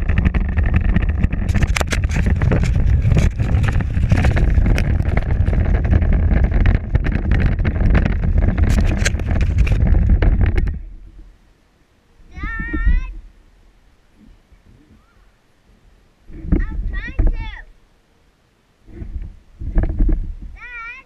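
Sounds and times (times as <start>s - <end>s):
plastic wheels rattling: 0.0s - 10.8s.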